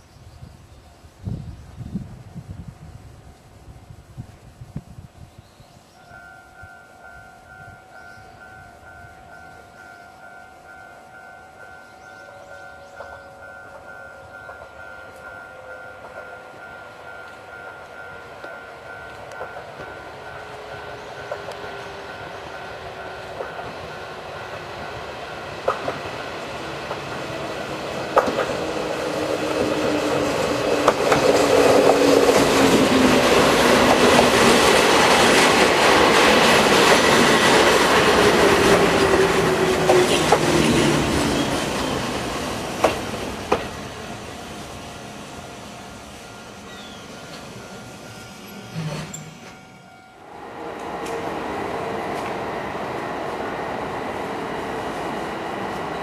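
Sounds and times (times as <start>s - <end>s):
faint pulsing bell-like tone: 6.0s - 25.4s, 46.2s - 50.4s
train wheels clacking over joints: 21.2s - 43.8s
electric train motor whine: 36.6s - 56.0s.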